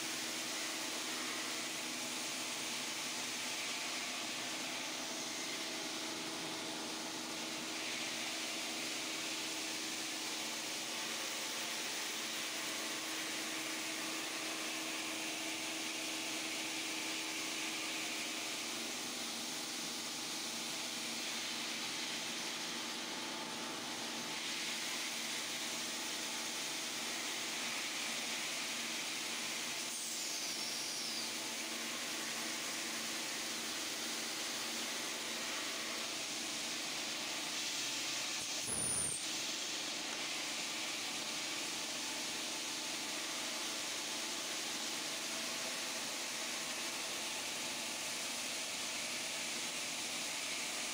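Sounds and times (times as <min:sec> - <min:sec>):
stone polishing machine grinding: 0:38.5 - 0:39.2.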